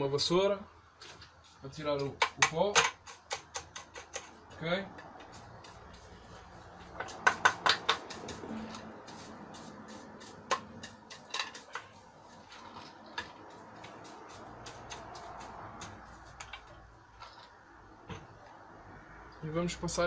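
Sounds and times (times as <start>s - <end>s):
brush knocking on lamp base: 6.8s - 9.3s
scratchy hand brush sweeping: 8.0s - 10.9s, 11.5s - 16.4s.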